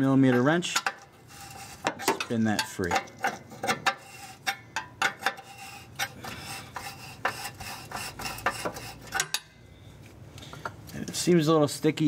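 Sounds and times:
threads scraping and rasping: 0.1 - 9.4.

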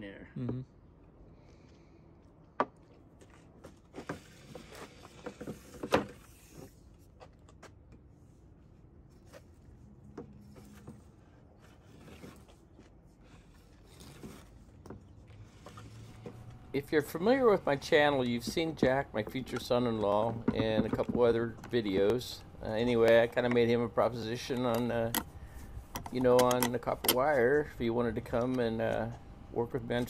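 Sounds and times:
cable rustling and tapping: 17.2 - 27.4.

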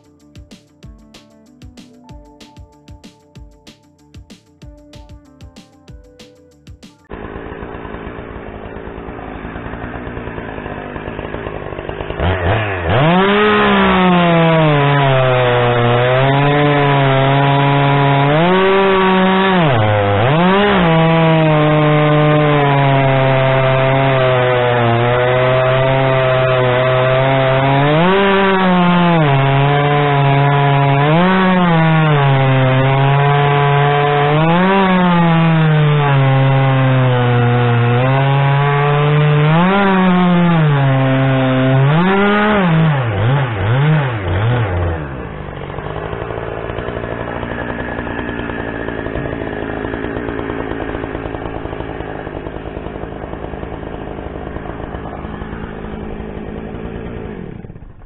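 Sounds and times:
chainsaw cutting wood: 0.0 - 58.0.

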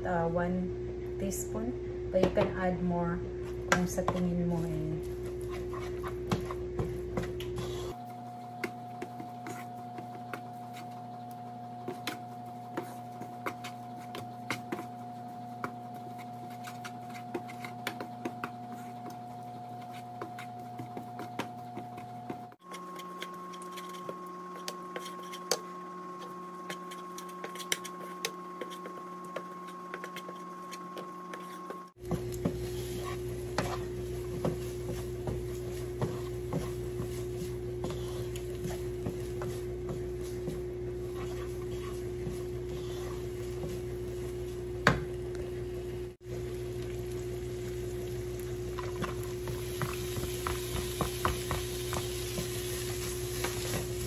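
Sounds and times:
steady low hum: 0.0 - 54.0
wooden spatula scraping frying pan: 31.3 - 44.6
bacon frying crackle: 32.0 - 39.4, 43.3 - 54.0.

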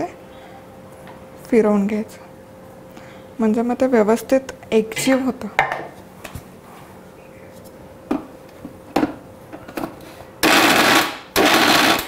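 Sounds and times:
mixer grinder running in pulses: 10.4 - 12.0.

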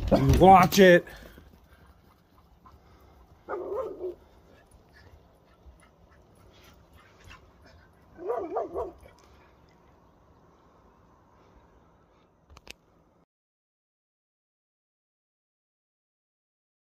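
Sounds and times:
dog barking: 3.4 - 4.3, 8.1 - 9.2.

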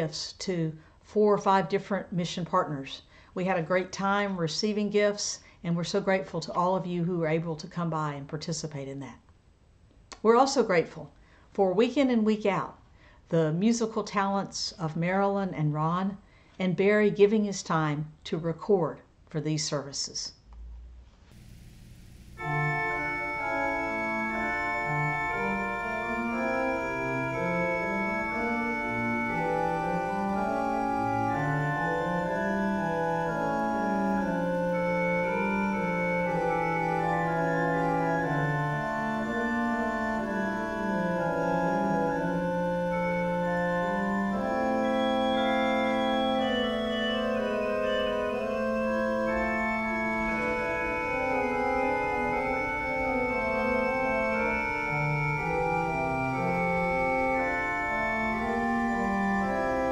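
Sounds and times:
church organ playing chords: 21.3 - 59.9.

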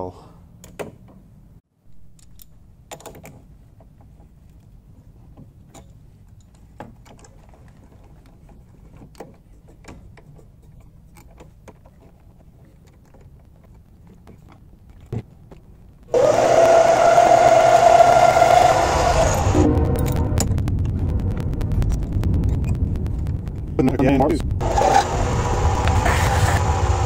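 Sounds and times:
lathe running with steady whine: 16.1 - 19.8, 24.6 - 27.0.

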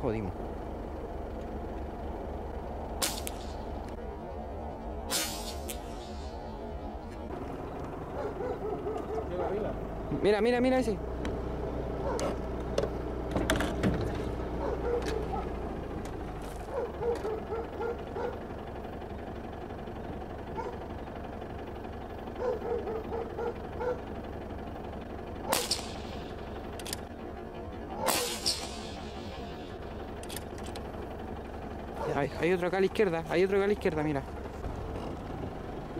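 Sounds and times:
vehicle engine idling: 0.0 - 35.9
sharp crack: 3.0 - 4.0, 5.1 - 6.7, 25.4 - 27.1, 28.0 - 29.6
scattered clicks: 26.8 - 27.1, 30.2 - 30.9.

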